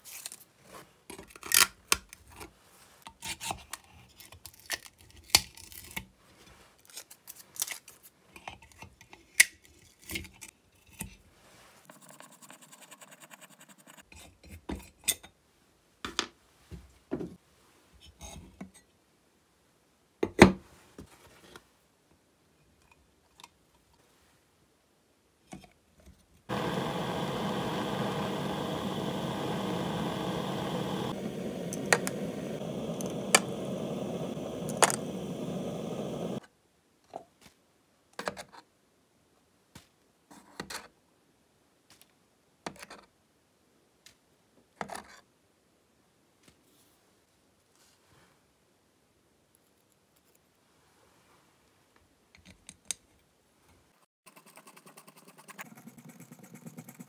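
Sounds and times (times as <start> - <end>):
butane torch hissing: 26.5 - 36.4.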